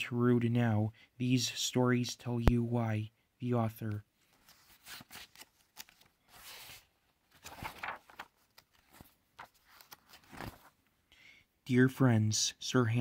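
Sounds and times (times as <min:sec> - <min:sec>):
book pages flipping: 0:04.2 - 0:10.8.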